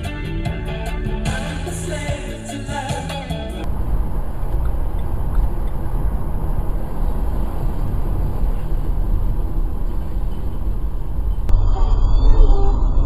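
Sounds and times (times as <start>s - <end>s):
car road noise from inside cabin: 3.6s - 11.6s.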